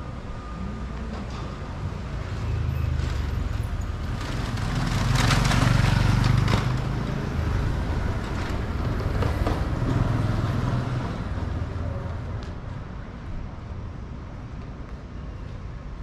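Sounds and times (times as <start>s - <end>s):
vehicle engine hum: 0.0s - 16.0s.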